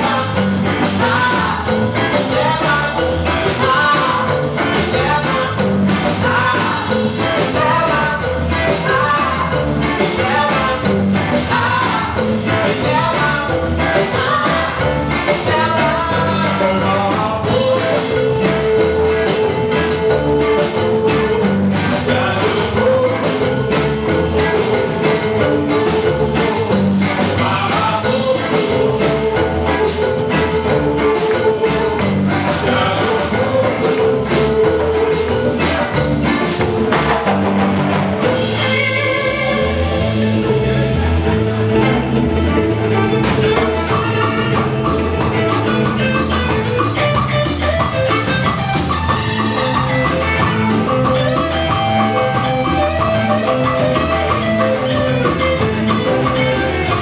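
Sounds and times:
congas: 0.0s - 57.0s
drum kit: 0.0s - 57.0s
electric bass: 0.0s - 57.0s
electric guitar: 0.0s - 57.0s
electric violin: 38.1s - 57.0s.

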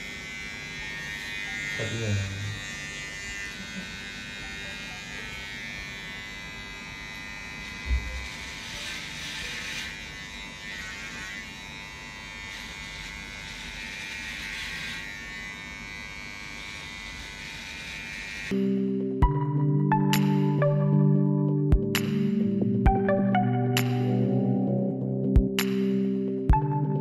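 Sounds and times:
hair clippers buzzing: 0.0s - 18.8s
soft thump: 7.9s - 8.2s.

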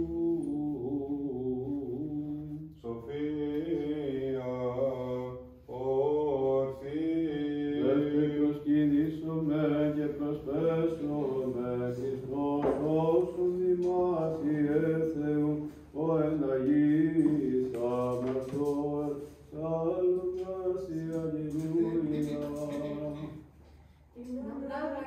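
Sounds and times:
voices chanting: 5.8s - 23.5s.

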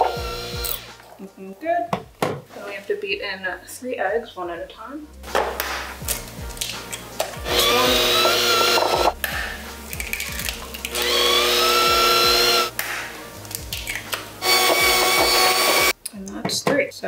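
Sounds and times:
electric hand mixer whirring: 0.0s - 0.9s, 7.4s - 9.2s, 10.9s - 12.7s, 14.4s - 15.9s.

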